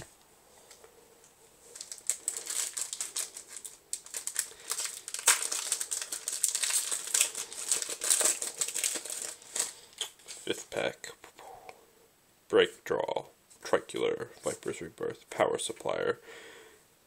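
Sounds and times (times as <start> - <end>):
foil wrapper crinkling: 1.7 - 10.5.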